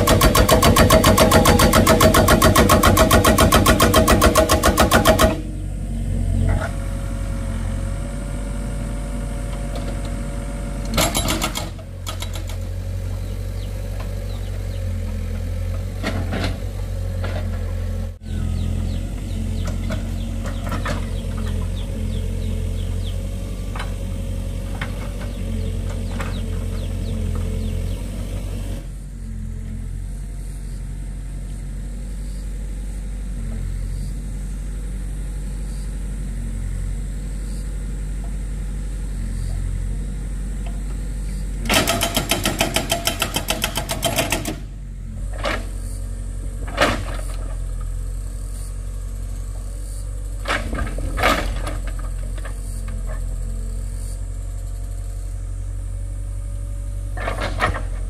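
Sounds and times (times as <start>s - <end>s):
fast mechanical rattling: 0.0s - 5.4s
low engine-like hum: 0.0s - 58.0s.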